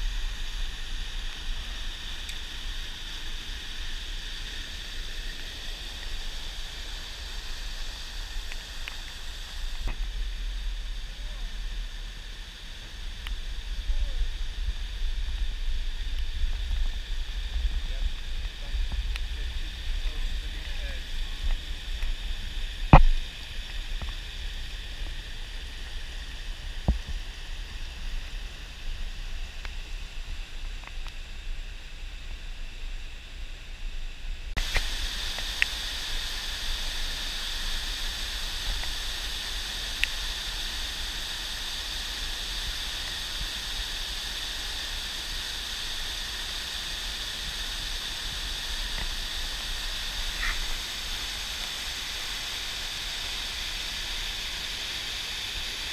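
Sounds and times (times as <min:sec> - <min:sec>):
waterfall rushing over rocks: 0:00.0 - 0:30.7, 0:34.6 - 0:55.9.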